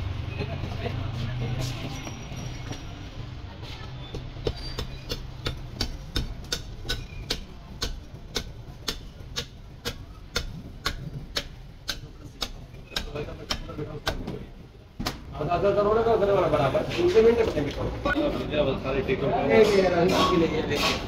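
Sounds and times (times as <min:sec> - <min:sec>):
knife chopping through ribs: 0:04.2 - 0:14.3.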